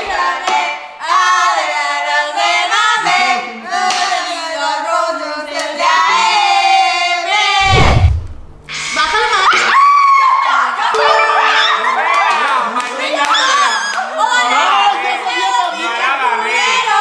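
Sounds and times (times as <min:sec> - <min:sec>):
group of people singing: 0:00.0 - 0:07.7
short low thump: 0:07.6 - 0:08.7.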